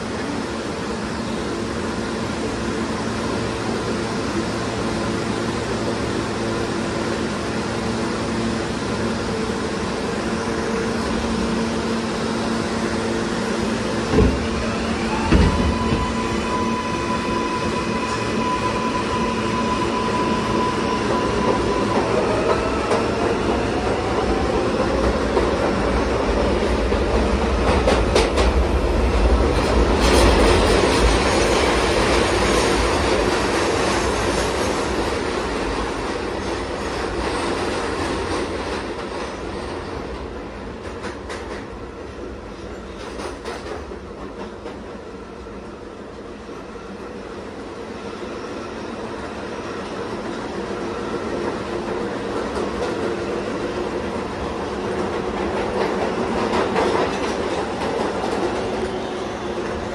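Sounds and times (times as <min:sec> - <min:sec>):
rail-joint clicks: 0:42.5 - 0:45.0
wheel and track rumble: 0:50.1 - 0:59.9.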